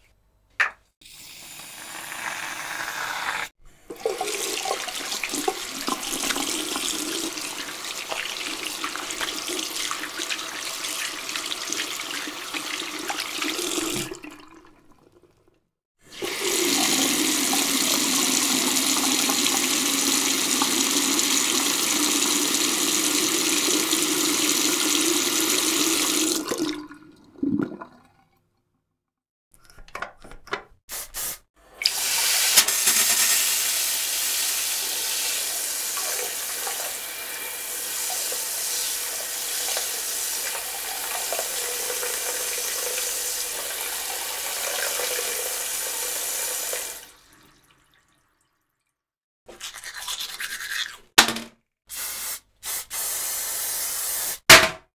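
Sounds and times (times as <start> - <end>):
toilet flushing: 3.4 - 28.1, 31.6 - 48.2
water running from a tap: 3.9 - 15.3, 16.1 - 27.0, 31.8 - 48.2.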